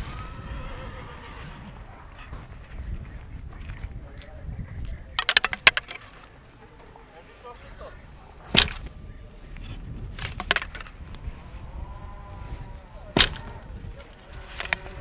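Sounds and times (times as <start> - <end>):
arrows clicking against bow: 13.2 - 15.0.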